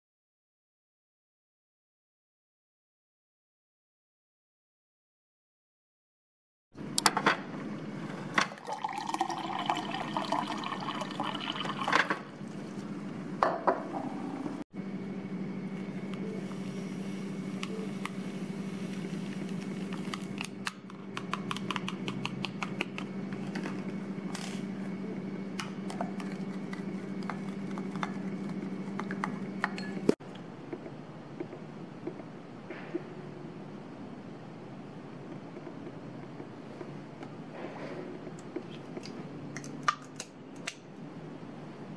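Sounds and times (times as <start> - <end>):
water pouring into a glass: 8.6 - 12.0.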